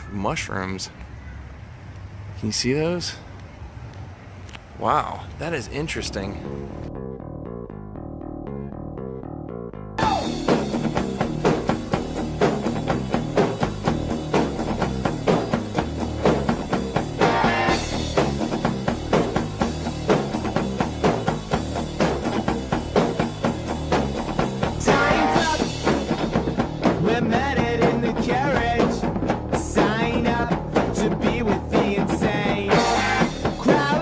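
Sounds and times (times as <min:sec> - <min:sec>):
rock music with driving drums: 0:10.0 - 0:34.0.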